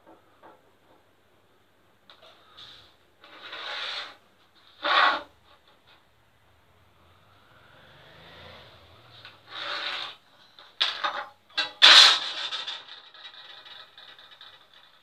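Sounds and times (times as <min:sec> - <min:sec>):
scrapes and rubs on plywood: 0:02.6 - 0:05.7, 0:09.4 - 0:10.2.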